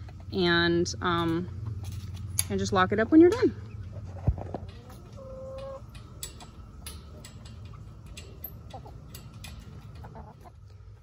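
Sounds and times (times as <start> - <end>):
light metallic clicks: 1.1 - 3.8, 4.6 - 10.2
chicken clucking: 3.6 - 11.0.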